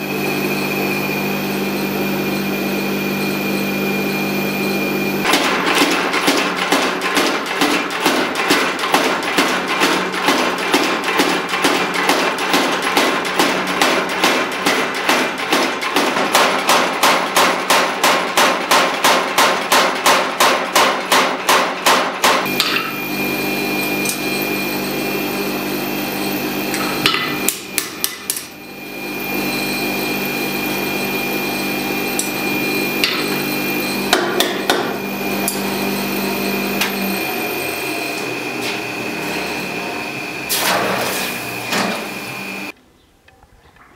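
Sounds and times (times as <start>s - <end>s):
hammer striking metal on anvil: 5.3s - 23.0s, 26.7s - 28.6s, 33.0s - 33.5s, 34.1s - 35.7s.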